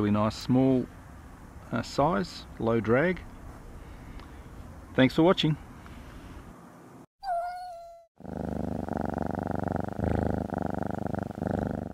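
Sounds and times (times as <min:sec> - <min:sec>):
cat purring: 0:08.2 - 0:11.9.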